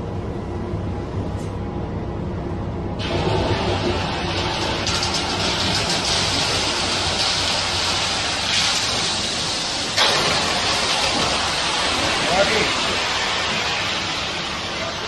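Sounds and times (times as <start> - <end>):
wet concrete sliding down chute: 3.1 - 15.0.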